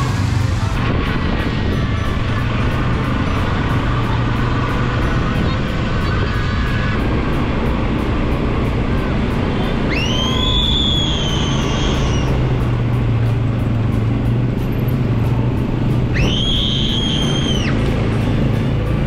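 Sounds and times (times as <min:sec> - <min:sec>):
music with whistle-like melody: 0:09.2 - 0:13.2, 0:15.9 - 0:18.9.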